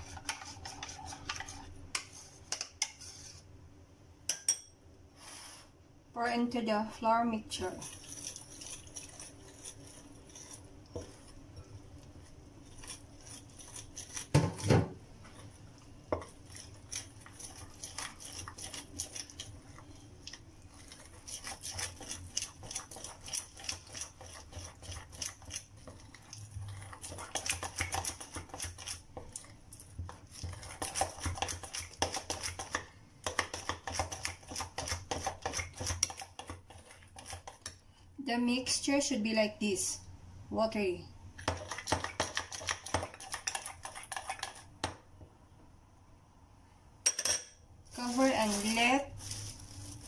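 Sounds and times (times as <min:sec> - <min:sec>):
metal spoon stirring in a bowl: 0:00.0 - 0:03.4, 0:07.6 - 0:37.8, 0:41.4 - 0:44.7.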